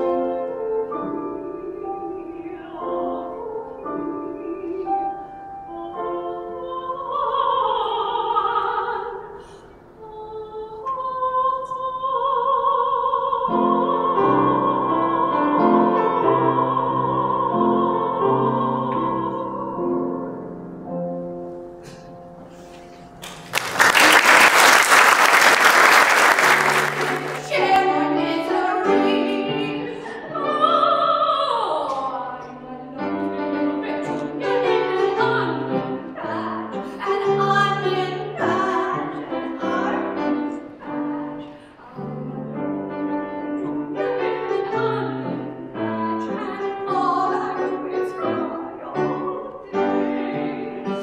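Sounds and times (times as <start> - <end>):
woman singing: 0.0 - 20.0, 27.0 - 42.2, 43.6 - 51.0
grand piano: 0.0 - 51.0
audience applause: 23.2 - 27.6.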